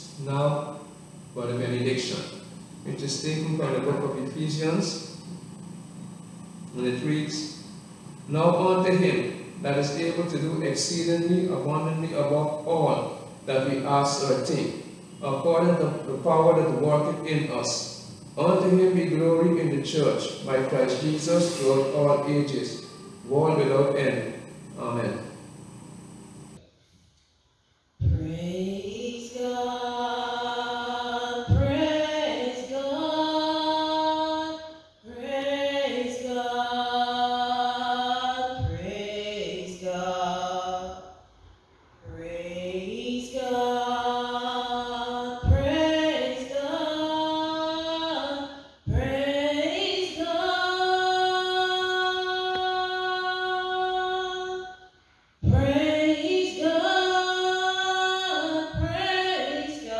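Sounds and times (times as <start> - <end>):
woman singing unaccompanied: 28.0 - 41.0, 42.1 - 54.8, 55.4 - 59.9.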